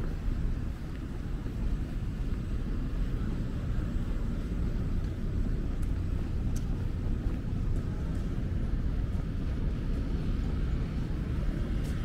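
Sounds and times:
low city rumble: 0.0 - 12.0
faint clicks: 5.0 - 8.3.

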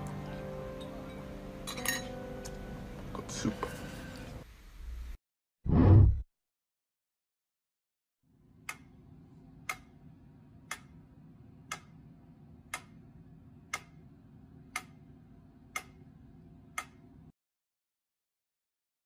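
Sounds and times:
sharp clock ticks: 8.7 - 9.0, 9.6 - 10.0, 10.7 - 11.0, 11.7 - 12.0, 12.7 - 13.0, 13.7 - 14.1, 14.7 - 15.1, 15.7 - 16.1, 16.8 - 17.1.

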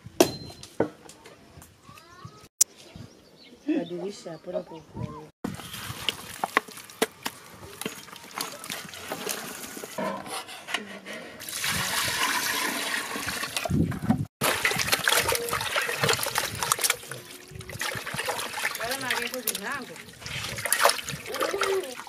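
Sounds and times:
water splashing and sloshing: 5.4 - 10.0, 11.4 - 22.0
water pouring into steel pot: 11.4 - 13.7, 14.4 - 22.0.

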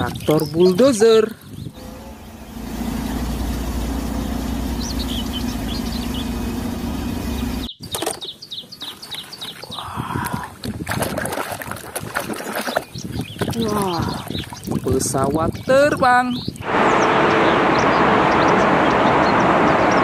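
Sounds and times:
birds chirping: 0.0 - 10.6, 12.3 - 20.0
bulldozer diesel engine running: 1.8 - 7.7, 16.6 - 20.0.

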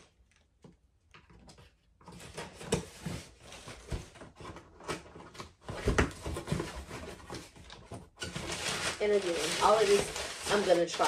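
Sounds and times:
packaging rustling and crinkling: 1.6 - 11.0
sharp crackles: 8.5 - 11.0.

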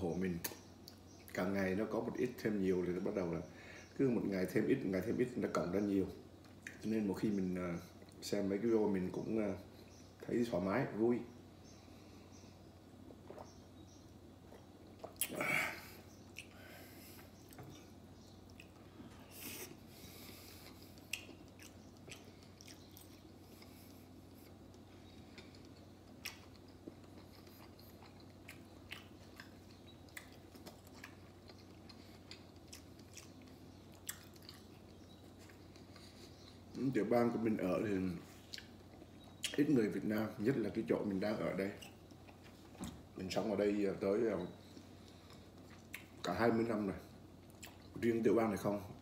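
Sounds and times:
faint steady hum: 0.0 - 49.0
quiet chewing: 0.4 - 1.4, 6.4 - 8.3, 11.6 - 40.0, 40.8 - 43.5, 44.4 - 48.1.

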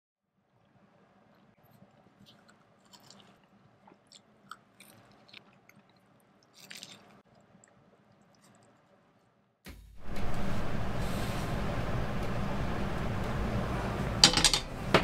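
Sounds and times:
chewing crunchy sandwich: 1.6 - 9.0.

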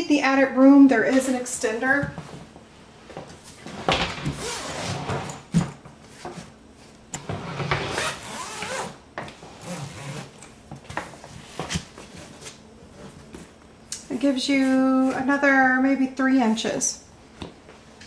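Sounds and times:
suitcase zipper unzipping: 4.2 - 5.5, 7.4 - 9.0, 9.6 - 10.4.

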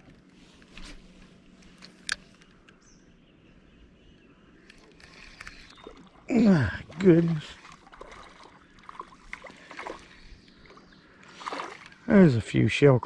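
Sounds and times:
faint steady hum: 0.0 - 13.0
light clicks: 4.2 - 5.8.

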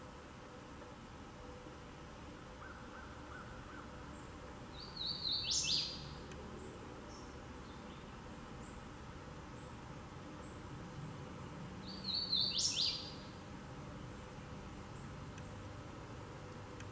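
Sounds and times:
warbler singing: 2.6 - 15.7.

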